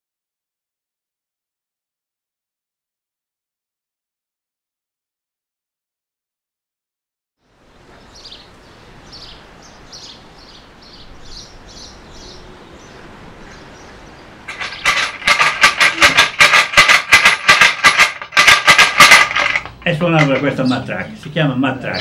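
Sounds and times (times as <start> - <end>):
faint bird chirping: 7.4 - 14.9
wooden clapper rattle clattering: 14.5 - 20.8.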